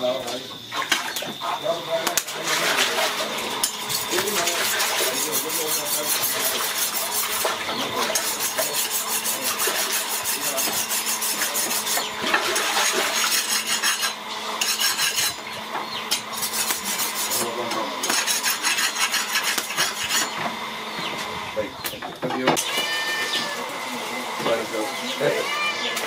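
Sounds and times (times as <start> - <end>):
knife rasping against knife: 3.6 - 15.4, 16.1 - 20.4.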